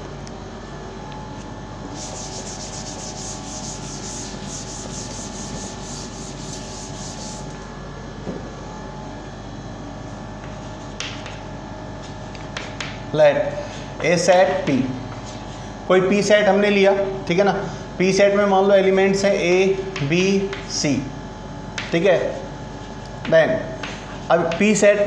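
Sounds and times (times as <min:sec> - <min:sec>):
duster scrubbing a chalkboard: 0:01.9 - 0:07.6
chalk writing on a board: 0:02.0 - 0:07.5.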